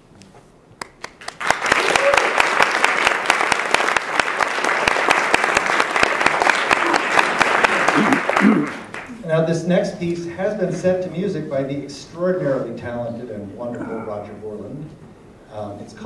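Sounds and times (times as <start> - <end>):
audience applauding: 0.8 - 9.1.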